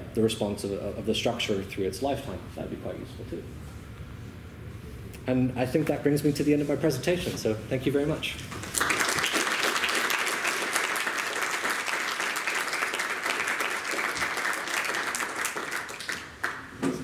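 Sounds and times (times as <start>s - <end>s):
audience applauding: 8.5s - 16.8s.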